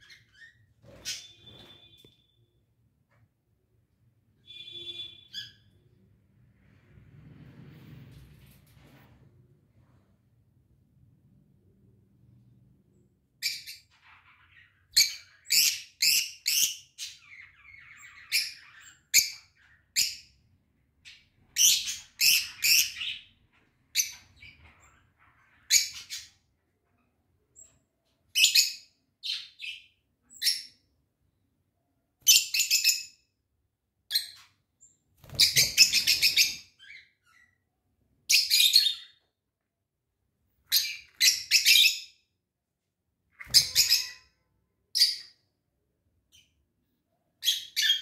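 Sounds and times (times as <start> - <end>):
lovebirds chirping shrilly: 35.2 - 37.6, 43.4 - 44.4.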